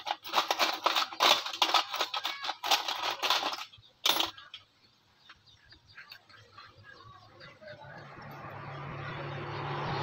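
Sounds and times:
metal parts clinking in plastic box: 0.0 - 4.6.

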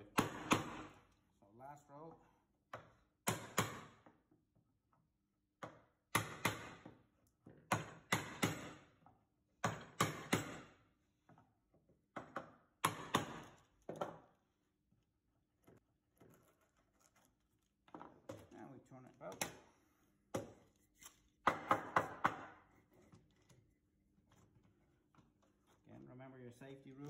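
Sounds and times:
mallet striking chisel: 0.1 - 0.9, 7.7 - 8.8, 9.6 - 10.6, 21.4 - 22.6.

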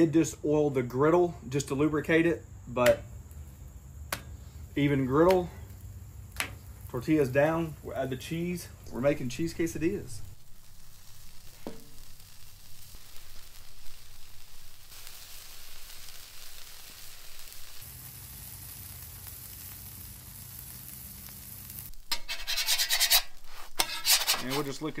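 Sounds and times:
food sizzling on griddle: 4.4 - 25.0
metal spatula scraping griddle: 22.0 - 25.0.

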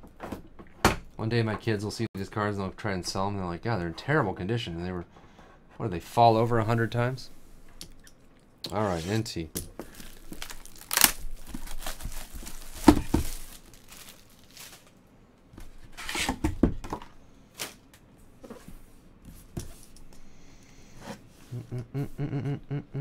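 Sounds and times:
plastic shrink-wrap tearing: 9.9 - 15.0
person humming: 21.5 - 23.0.

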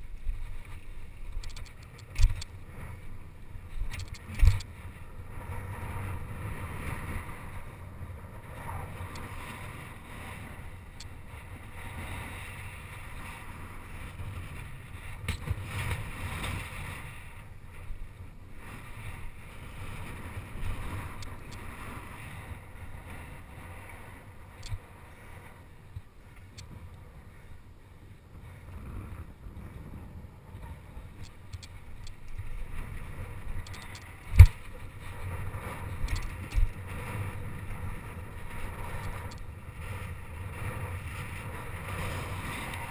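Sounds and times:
wind buffeting microphone: 0.0 - 42.9
bike rattling clicks and knocks: 1.3 - 2.6, 3.8 - 4.7, 31.2 - 32.4, 33.6 - 34.7, 36.0 - 36.8
bicycle tyres rumbling on dirt: 28.6 - 42.9.

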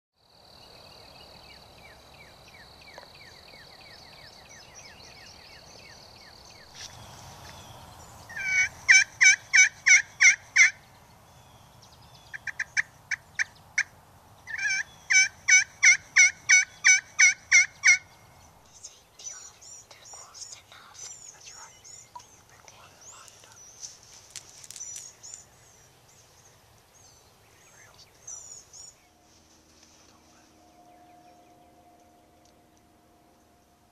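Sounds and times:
turkey call clucks: 8.3 - 10.8, 12.3 - 13.9, 14.5 - 18.1
turkey call yelps: 8.3 - 10.8, 12.3 - 13.9, 14.5 - 18.0.

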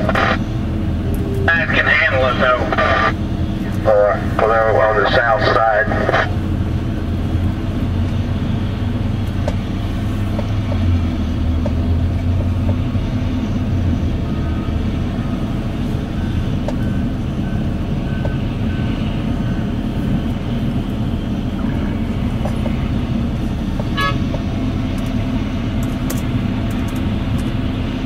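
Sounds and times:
heavy diesel machines running: 0.0 - 28.0
reversing alarm beeping: 14.2 - 19.9.

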